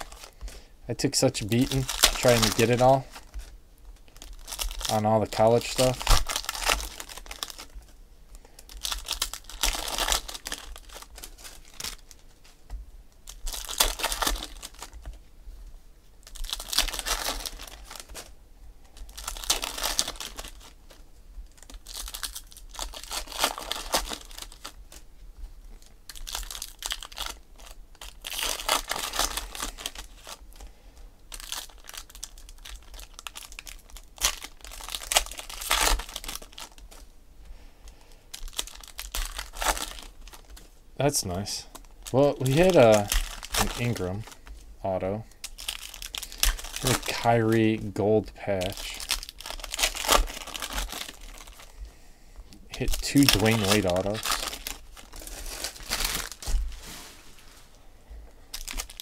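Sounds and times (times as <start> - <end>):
foil packs crinkling and tearing: 0.0 - 12.4, 13.2 - 15.2, 16.2 - 18.3, 18.9 - 25.0, 25.7 - 30.7, 31.3 - 37.1, 37.8 - 51.8, 52.7 - 57.5, 58.5 - 59.0
handling of cards: 1.3 - 15.2, 37.9 - 57.8.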